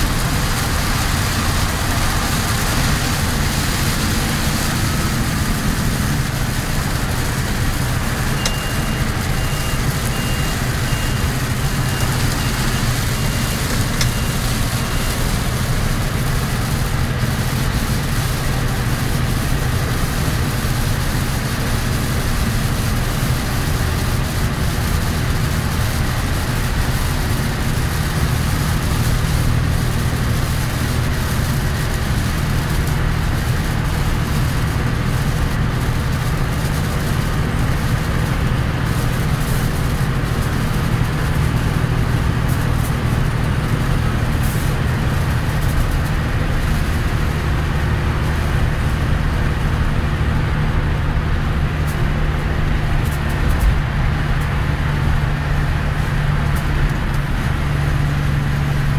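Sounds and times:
diesel truck engine droning: 0.0s - 58.9s
heavy rain and tyre spray hiss: 0.0s - 58.9s
short high beeps: 8.3s - 15.1s.

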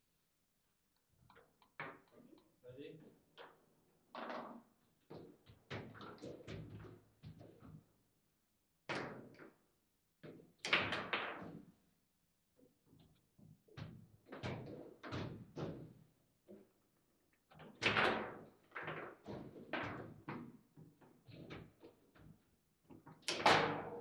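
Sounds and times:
table football clacks and knocks: 1.3s - 2.6s, 3.4s - 7.8s, 10.3s - 11.7s, 13.7s - 16.8s, 17.5s - 24.0s.

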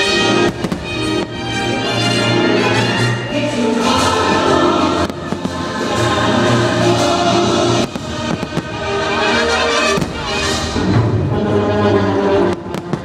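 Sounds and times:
soundtrack music with choral singing: 0.0s - 13.0s
firework bangs: 0.3s - 1.5s, 7.7s - 11.0s.

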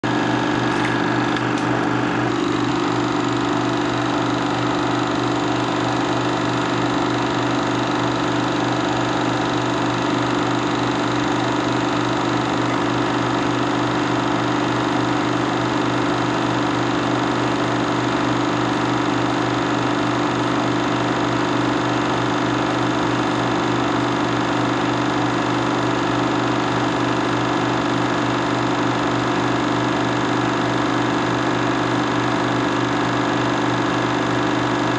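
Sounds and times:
film projector running: 0.0s - 34.9s.

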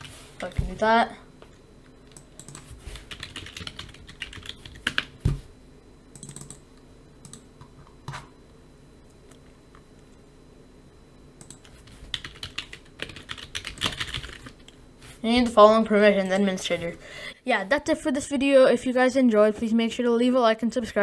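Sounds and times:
computer keyboard typing: 2.1s - 5.2s, 6.2s - 6.6s, 7.2s - 7.5s, 11.4s - 14.8s.

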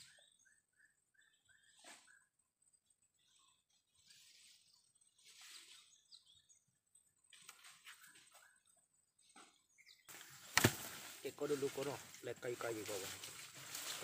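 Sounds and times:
faint rustling: 10.1s - 14.0s.

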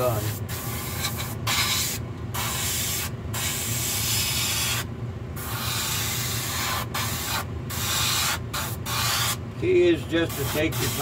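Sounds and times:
steady low hum: 0.0s - 11.0s
paint spray gun hissing: 5.4s - 9.4s.

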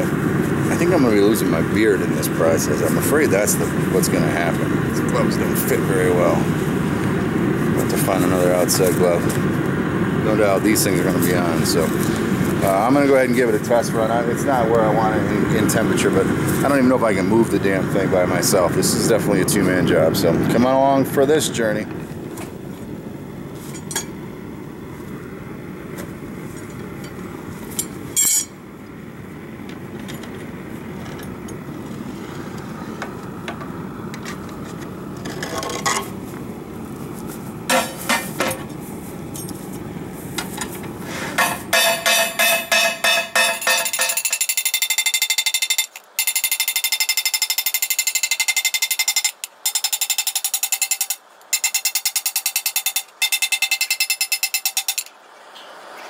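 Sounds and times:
gas forge roaring: 0.0s - 44.7s
hammer striking hot steel: 23.7s - 24.2s, 26.6s - 28.6s, 37.7s - 38.7s, 41.3s - 55.1s
metallic clanks of steel plate: 37.7s - 38.7s, 41.4s - 55.1s.

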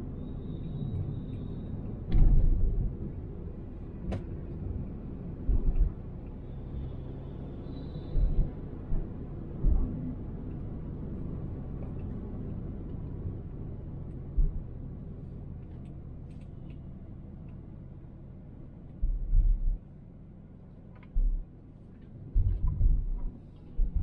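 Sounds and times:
car road and engine rumble: 0.0s - 24.0s
low thumps: 14.3s - 14.6s, 19.0s - 19.8s, 21.1s - 21.5s, 22.4s - 24.0s.

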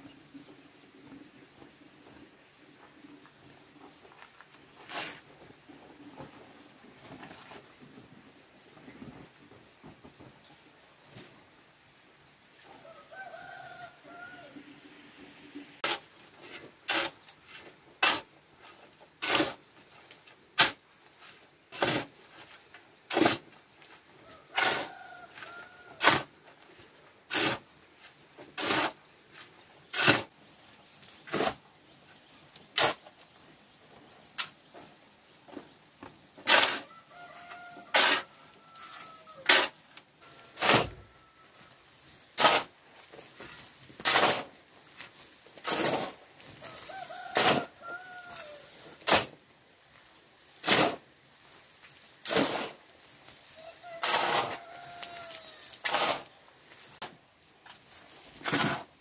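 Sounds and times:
rooster crowing faintly: 12.7s - 15.8s, 24.2s - 26.3s, 36.5s - 42.0s, 46.6s - 49.2s, 53.4s - 56.2s
hand tool striking concrete: 42.4s - 42.7s, 44.0s - 44.5s, 45.6s - 46.2s, 49.0s - 49.4s, 50.6s - 51.0s.

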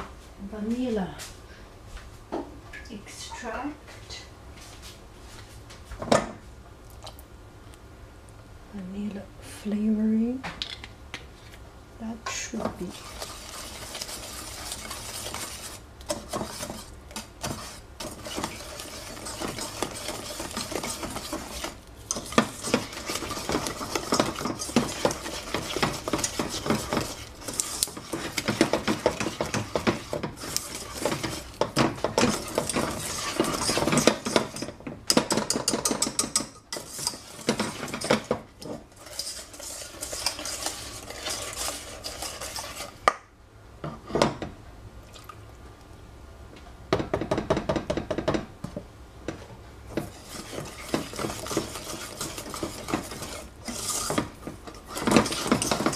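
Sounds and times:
whisk scraping against metal pan: 12.3s - 43.1s, 49.9s - 55.9s.

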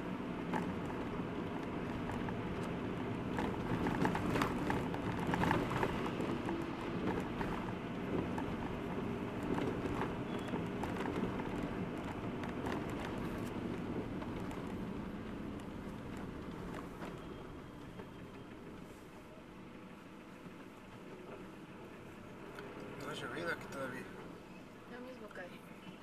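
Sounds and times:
car engine and road noise: 0.0s - 26.0s
small clicks and rattles: 0.4s - 17.2s.

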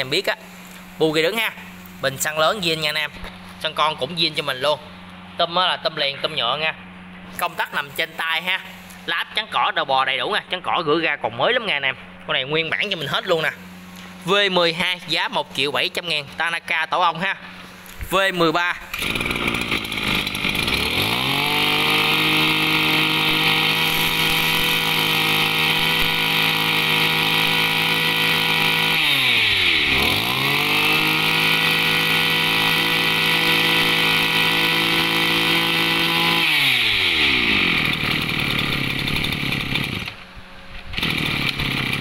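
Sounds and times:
brush cutter engine revving: 18.1s - 42.0s.

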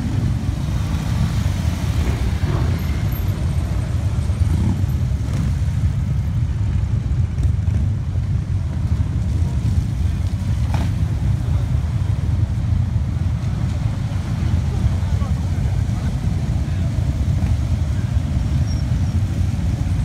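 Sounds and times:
motorcycles rumbling past: 0.0s - 11.9s.

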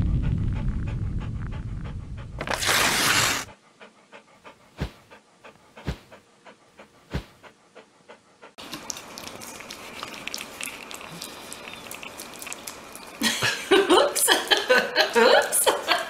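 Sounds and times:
low rumble: 0.0s - 2.6s
dog panting: 0.3s - 2.5s, 3.2s - 12.9s.

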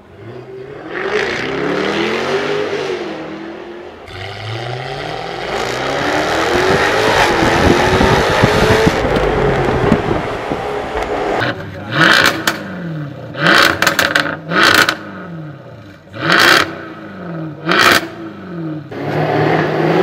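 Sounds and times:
sports car engine revving: 0.1s - 20.0s
exhaust crackle: 5.4s - 15.1s.

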